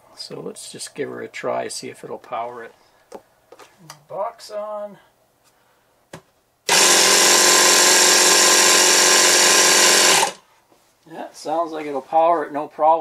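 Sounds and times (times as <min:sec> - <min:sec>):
small air compressor running: 0:06.7 - 0:10.4.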